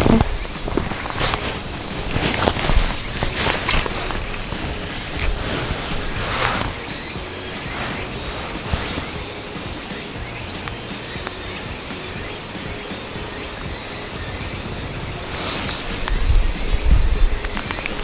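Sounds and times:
wind buffeting the microphone: 0.0 - 9.3, 13.6 - 18.0
high insect drone: 0.0 - 18.0.

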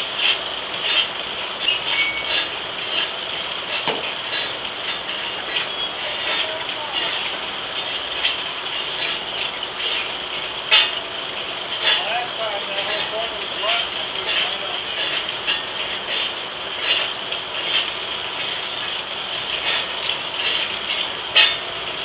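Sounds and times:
steam sawmill running: 0.0 - 22.0
metallic clicks and clanks: 0.1 - 22.0.

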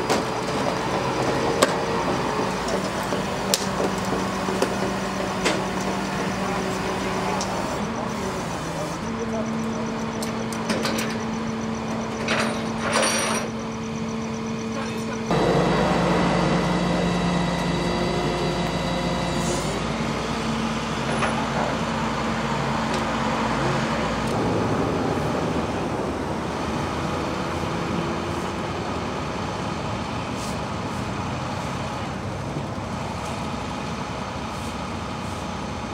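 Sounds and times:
truck engine humming: 0.0 - 35.9.

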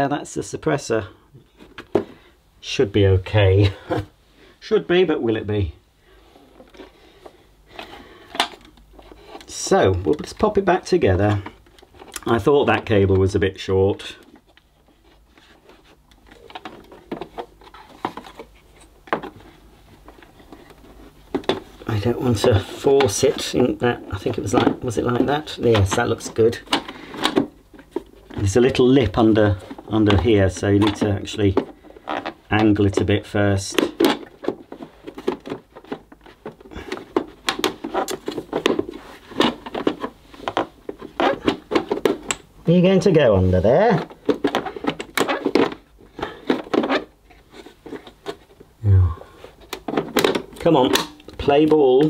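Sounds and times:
plastic cover knocking and rubbing: 1.5 - 2.2, 14.2 - 42.6, 43.8 - 48.7, 49.5 - 51.1
plastic casing clicks and knocks: 49.7 - 51.4.

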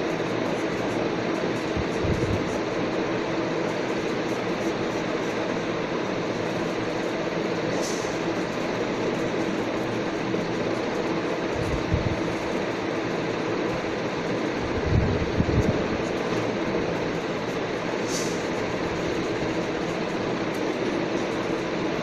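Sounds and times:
steady mechanical hum: 0.0 - 22.0
short hiss: 18.0 - 18.4.

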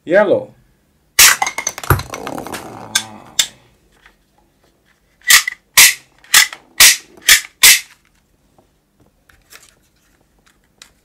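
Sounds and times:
toy gun firing shots: 5.3 - 7.9.

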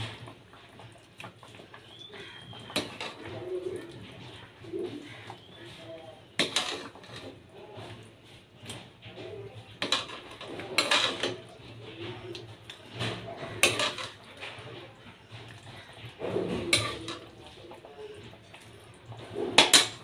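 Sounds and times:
metal ladle clinking and scraping: 2.7 - 3.7, 6.4 - 7.4, 9.8 - 11.8, 12.7 - 14.6, 16.1 - 18.2.

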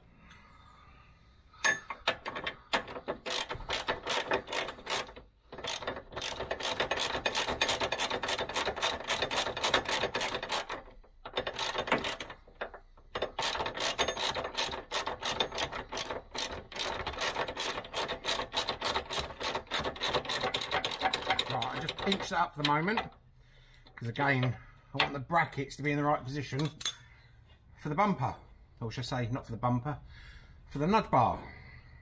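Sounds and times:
hand ratchet clicking: 1.6 - 24.6.

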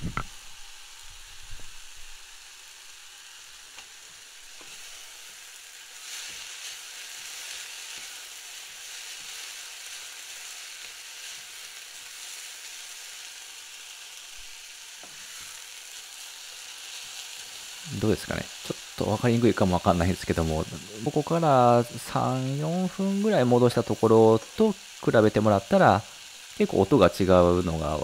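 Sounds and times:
onions sizzling in a pan: 0.0 - 28.0.

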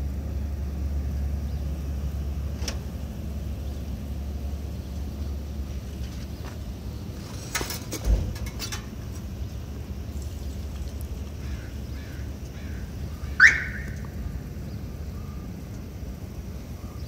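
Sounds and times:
low outdoor rumble: 0.0 - 17.0
faint bird calls: 11.3 - 15.6
crows cawing: 11.4 - 13.9.

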